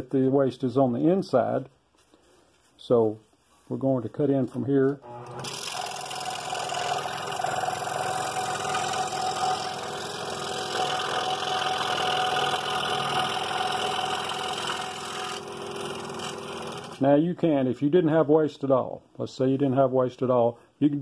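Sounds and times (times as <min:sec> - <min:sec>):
scroll saw cutting wood: 0:05.0 - 0:17.0.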